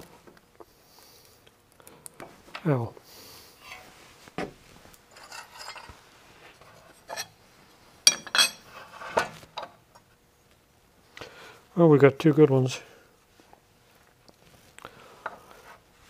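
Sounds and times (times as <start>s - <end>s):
metal block sliding and clinking: 3.6s - 3.9s, 5.1s - 5.9s.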